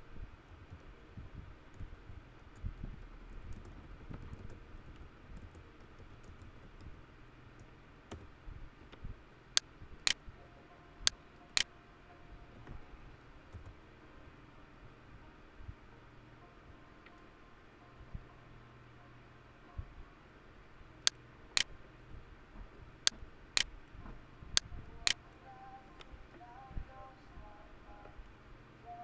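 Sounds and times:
typing on computer keyboard: 3.3s - 7.0s.

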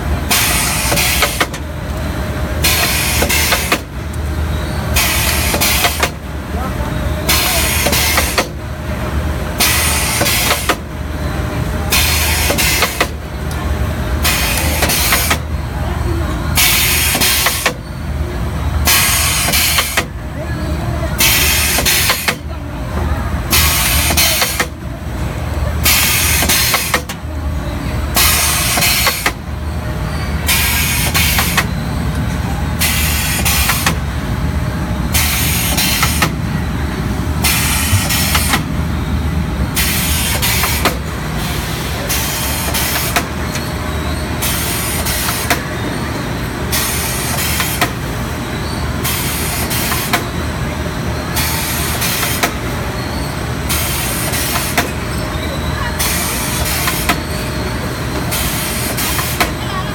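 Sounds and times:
machine hissing: 0.2s - 1.6s, 2.6s - 6.2s, 7.2s - 8.6s, 11.8s - 13.2s, 18.8s - 20.1s, 25.8s - 27.1s, 28.1s - 32.1s, 32.7s - 34.2s, 34.8s - 48.2s.

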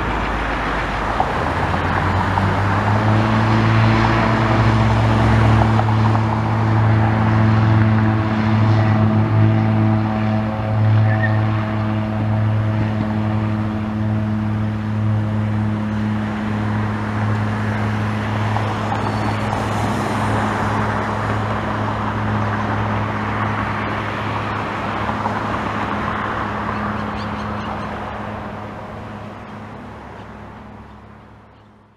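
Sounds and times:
aircraft engine and propeller drone: 0.0s - 31.9s.

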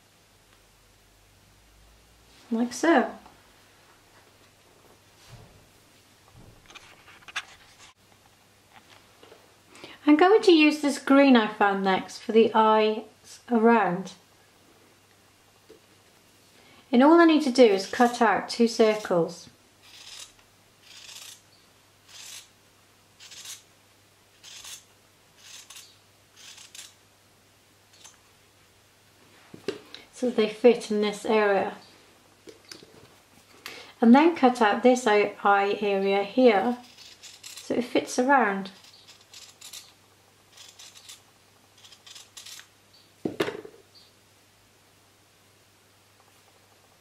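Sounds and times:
loud thump: 6.3s - 6.7s
scissors cutting fabric: 17.7s - 19.1s, 19.8s - 21.4s, 36.6s - 37.8s, 38.7s - 41.2s, 41.8s - 42.7s
scissors snipping through fabric: 41.8s - 42.7s.

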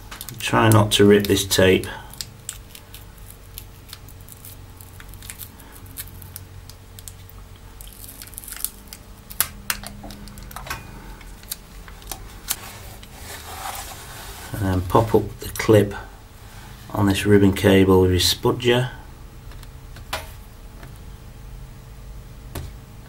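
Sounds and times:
tape peeling with crackling: 0.0s - 15.1s.

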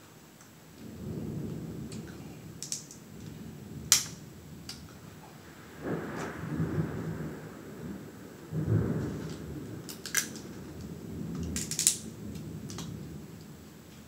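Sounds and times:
crab shells cracking: 2.6s - 3.0s, 9.9s - 10.8s, 11.4s - 12.9s.

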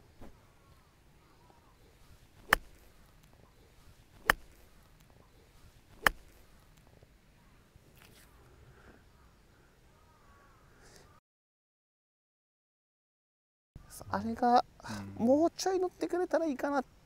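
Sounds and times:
golf club striking ball: 2.4s - 3.0s, 4.2s - 4.8s, 6.0s - 6.4s.

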